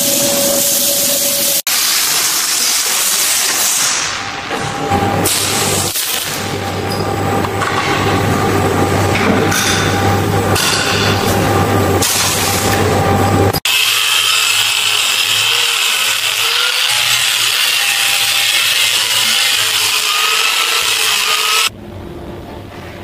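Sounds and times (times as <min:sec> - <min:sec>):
angle grinder grinding steel: 0:13.6 - 0:21.7.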